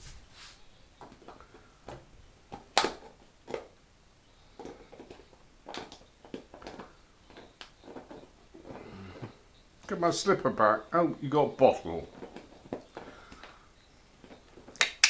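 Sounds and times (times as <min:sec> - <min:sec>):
puppy chewing plastic bottle: 0:01.0 - 0:03.8, 0:04.4 - 0:10.0, 0:11.8 - 0:15.0.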